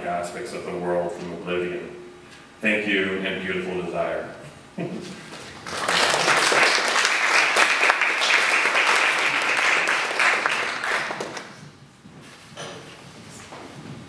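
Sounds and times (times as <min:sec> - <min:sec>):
audience applauding: 0:05.6 - 0:11.6.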